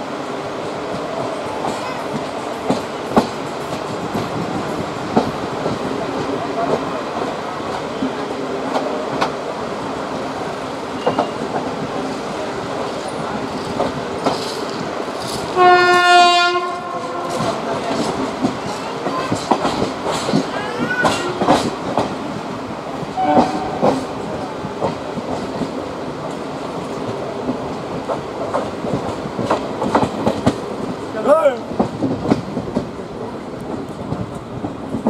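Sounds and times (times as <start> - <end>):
train wheels clickety-clack: 0.6 - 35.0
train horn blast: 15.6 - 17.5, 23.2 - 23.9.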